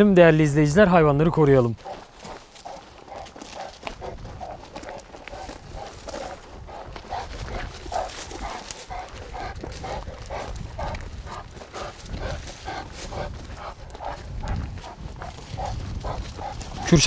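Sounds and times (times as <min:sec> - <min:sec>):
footsteps crunching on gravel: 0:01.2 - 0:17.0
dog panting: 0:01.8 - 0:17.0.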